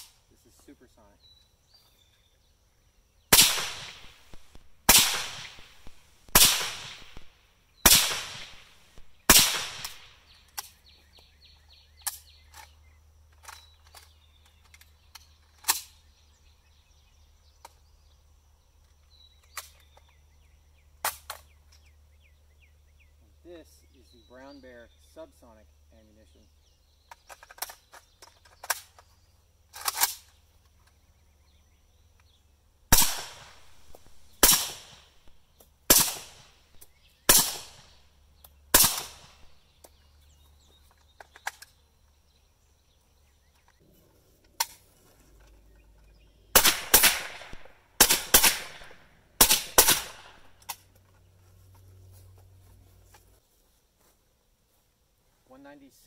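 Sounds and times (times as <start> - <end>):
suppressed rifle shots: 3.3 - 10.7, 32.9 - 38.0, 38.7 - 39.6, 46.5 - 50.6.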